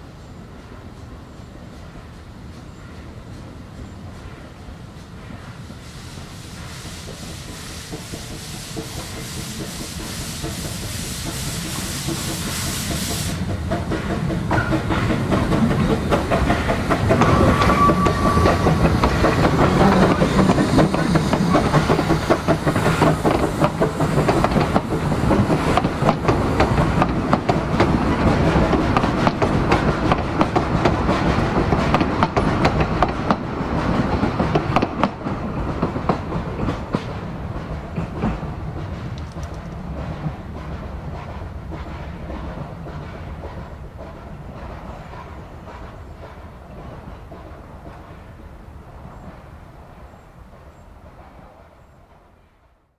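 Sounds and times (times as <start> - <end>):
high steam hiss: 0.0 - 50.2
steam locomotive passing: 0.0 - 52.9
coaches clattering over rail joints: 13.4 - 44.9.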